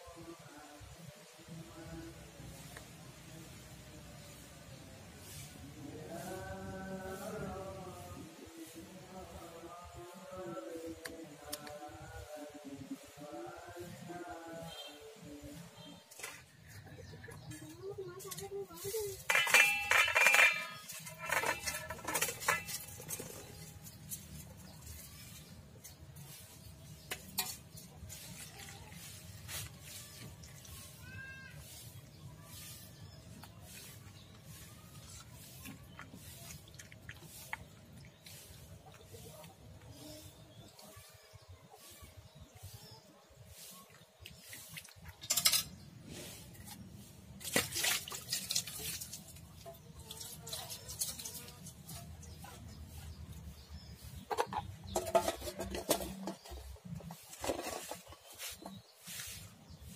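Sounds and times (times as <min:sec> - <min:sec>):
metal colander tapping steel bowl: 0:19.3 - 0:22.9
hands splashing water: 0:47.4 - 0:51.5.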